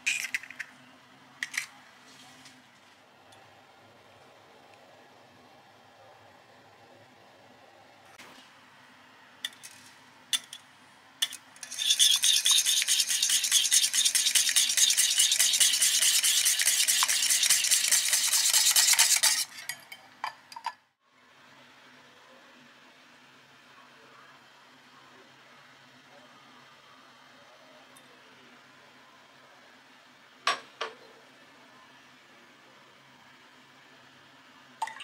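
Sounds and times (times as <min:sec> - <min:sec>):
whisk clinking against glass bowl: 0:11.6 - 0:20.0
whisk tapping glass bowl: 0:11.7 - 0:19.9.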